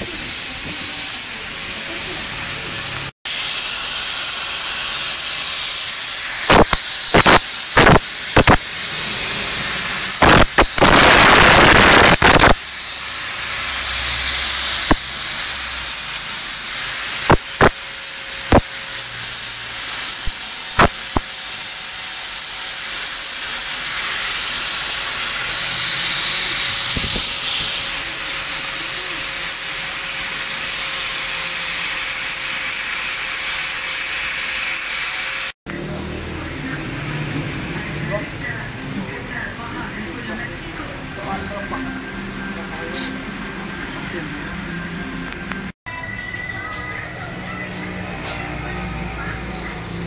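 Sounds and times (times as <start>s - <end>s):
angle grinder grinding metal: 0.0s - 35.6s.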